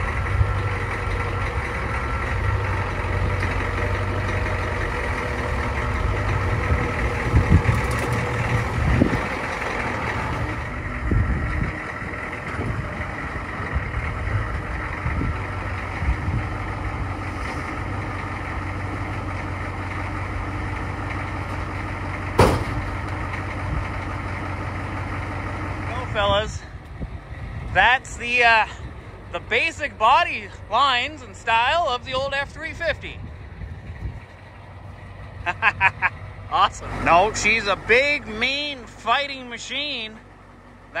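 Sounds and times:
diesel engine idling: 0.0s - 41.0s
low thumps: 22.2s - 23.9s
sharp knock: 22.4s - 22.8s.

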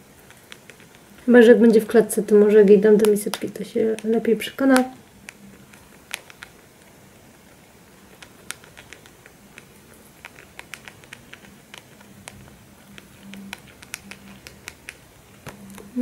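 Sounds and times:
guinea pig crunching food: 0.0s - 16.0s.

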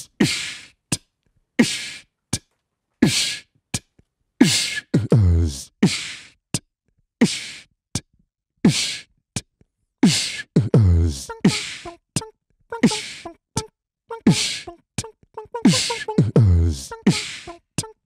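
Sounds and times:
looped beatboxing: 0.0s - 8.1s, 8.7s - 18.0s
short pitched vocal notes: 10.2s - 13.4s, 14.1s - 18.0s.

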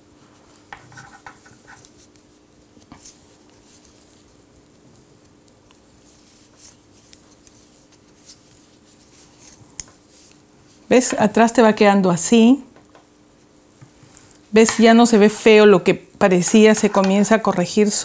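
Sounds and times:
faint steady hum: 0.0s - 18.0s
yarn rustling: 1.4s - 11.1s.

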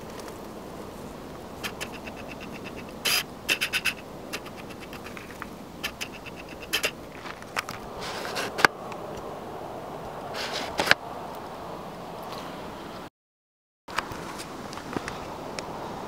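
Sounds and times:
low background hiss: 0.0s - 7.3s
scratchy clicks and scrapes: 1.6s - 8.7s.

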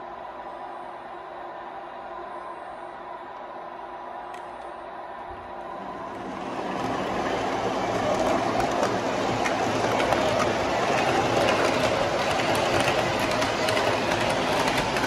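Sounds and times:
model train rumble: 6.0s - 15.0s
wheels clicking over track: 6.6s - 15.0s.

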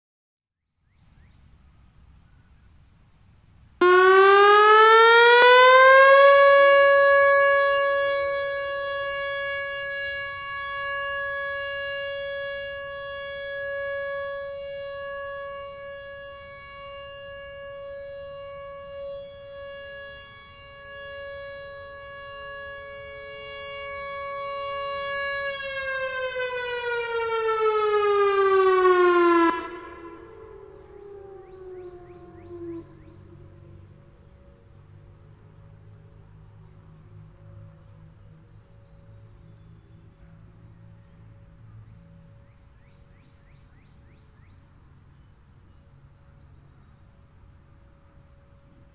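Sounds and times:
electronic warning siren: 3.8s - 35.3s.

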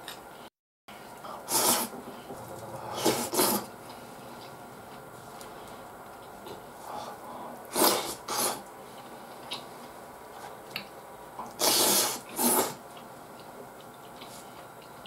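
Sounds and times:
person slurping from spoon: 2.9s - 3.7s
chewing: 8.6s - 9.7s, 10.3s - 15.0s.

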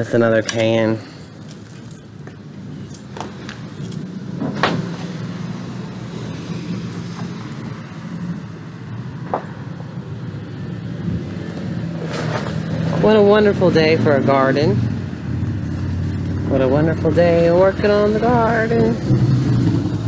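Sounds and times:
low engine drone: 0.0s - 20.0s.

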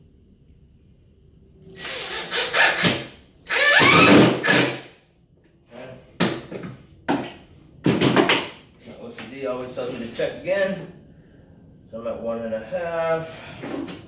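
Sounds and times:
cordless drill driving a screw: 1.8s - 4.8s.

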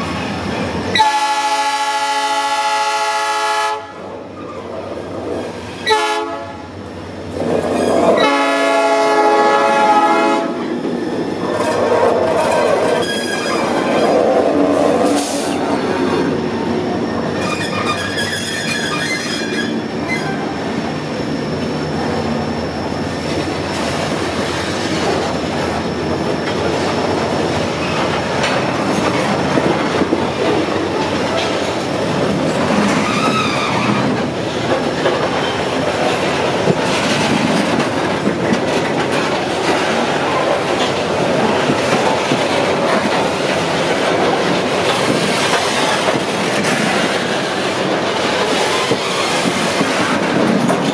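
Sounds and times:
train wheels clattering on rails: 6.9s - 50.9s
high wheel squeals: 12.4s - 14.2s, 17.0s - 21.7s, 32.8s - 34.2s.

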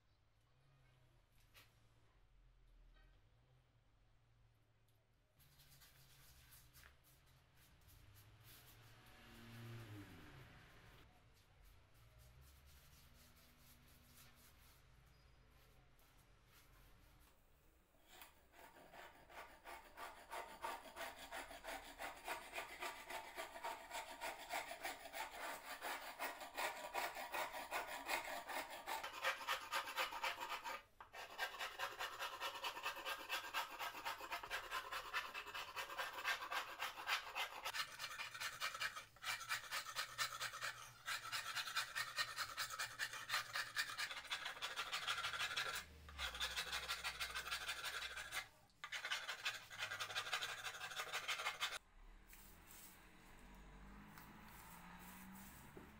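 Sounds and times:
metal scraper scraping paint off wood: 18.1s - 51.8s.

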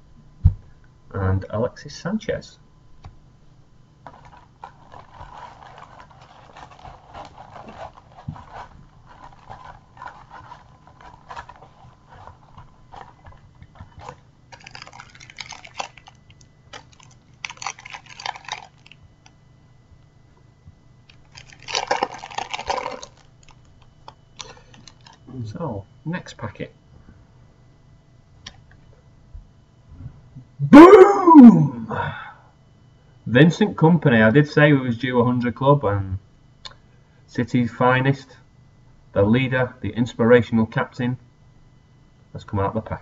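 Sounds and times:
cards rustling and clicking: 4.0s - 19.4s, 21.1s - 25.2s
foil packet crinkling: 4.0s - 19.4s, 21.0s - 25.3s.

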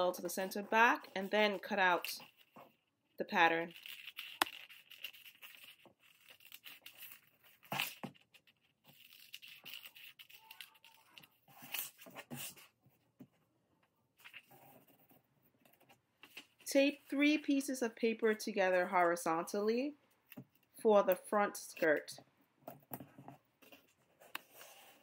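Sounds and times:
paper rustling: 3.6s - 12.8s, 14.2s - 17.4s
scissors snipping paper: 3.7s - 12.7s.

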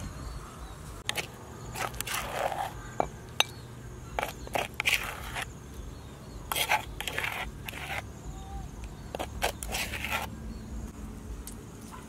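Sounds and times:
metal spoon scraping wooden mortar: 1.0s - 5.6s, 6.4s - 8.2s, 8.8s - 10.4s.

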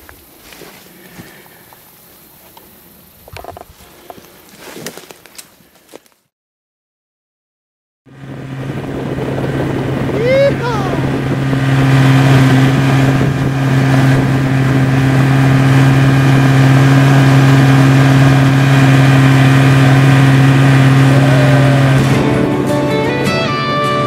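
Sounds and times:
outboard motor droning: 8.1s - 24.0s.

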